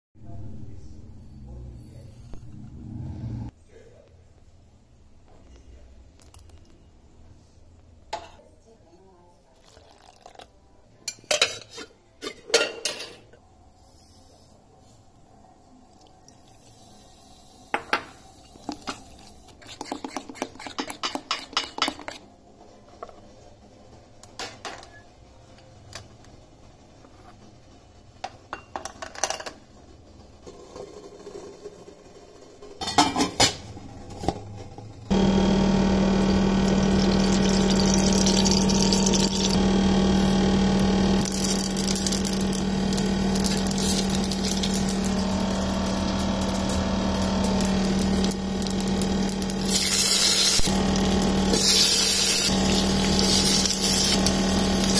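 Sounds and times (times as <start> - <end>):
low hum: 0.2 - 3.5, 35.1 - 54.9
hot oil sizzling: 35.1 - 54.9.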